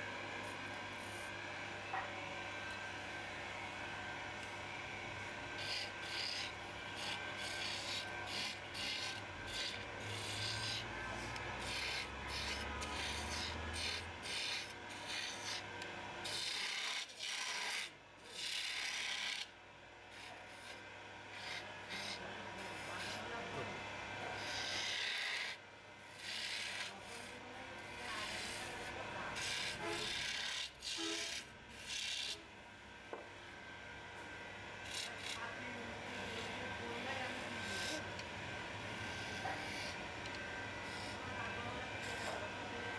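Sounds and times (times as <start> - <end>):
lathe humming: 0.0 - 19.4, 20.0 - 42.9
turning tool scraping spinning wood: 5.5 - 19.4, 26.2 - 32.4, 36.1 - 38.2.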